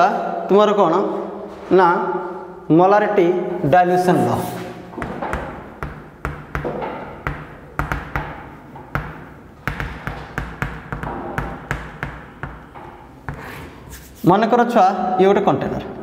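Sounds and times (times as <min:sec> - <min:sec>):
chalk tapping on a board: 0:04.9 - 0:14.2.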